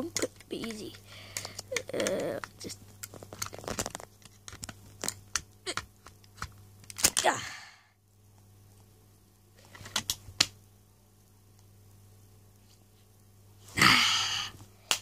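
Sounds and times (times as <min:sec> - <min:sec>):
clatter and handling noise: 0:00.0 - 0:07.3, 0:09.6 - 0:10.5
plastic bricks clicking and scraping: 0:00.0 - 0:07.3.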